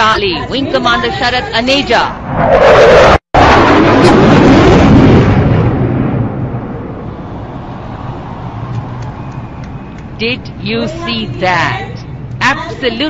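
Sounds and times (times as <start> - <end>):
fighter jet engine roar: 2.1 - 12.3.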